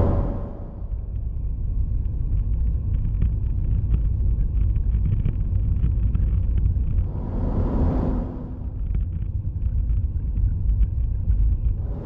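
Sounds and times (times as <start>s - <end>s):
rush of noise: 0.0s - 1.1s, 7.0s - 9.3s, 11.8s - 12.0s
car tyres and engine rumble: 0.0s - 12.0s.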